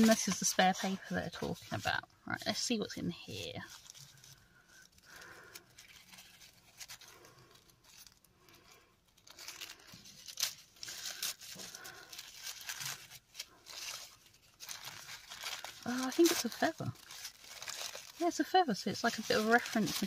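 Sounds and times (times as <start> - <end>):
tissue paper crinkling: 0.0 - 20.0.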